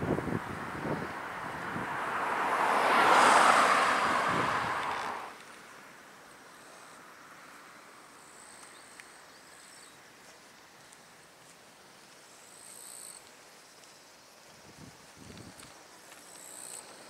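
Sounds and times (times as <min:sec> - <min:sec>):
distant road traffic: 0:00.0 - 0:17.0
wind hiss: 0:00.0 - 0:17.0
insect buzzes: 0:12.2 - 0:17.0.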